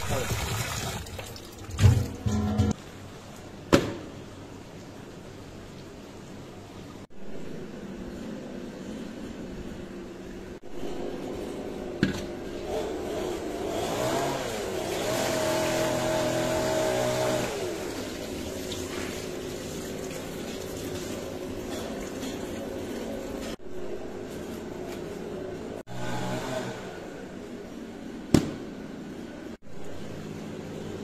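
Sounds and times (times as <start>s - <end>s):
motor engine revving: 12.7s - 17.6s.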